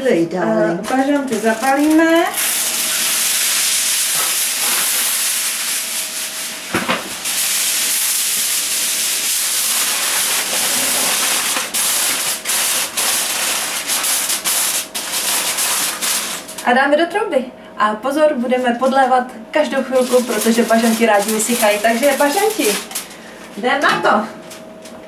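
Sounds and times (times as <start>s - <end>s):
kitchen foil crinkling: 0.8s - 16.7s, 19.6s - 23.7s.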